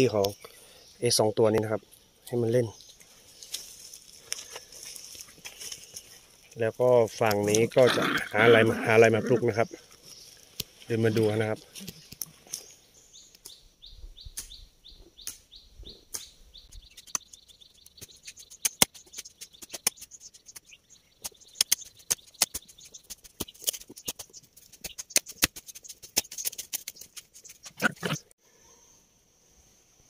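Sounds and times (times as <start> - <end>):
bird chirping: 0.0 - 28.8
sharp clicks and ticks: 16.1 - 28.0.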